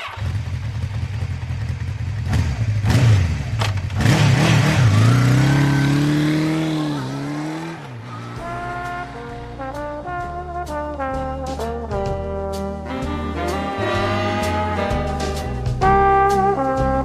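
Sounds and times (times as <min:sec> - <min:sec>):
motorcycle engine revving: 0:00.0 - 0:11.8.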